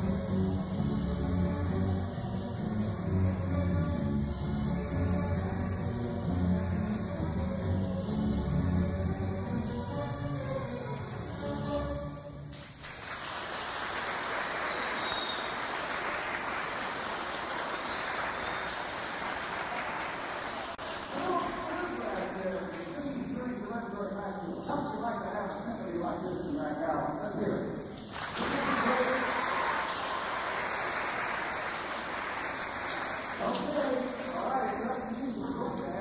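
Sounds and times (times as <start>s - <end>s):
music: 0.0s - 12.8s
audience applauding: 12.6s - 23.3s, 28.1s - 36.0s.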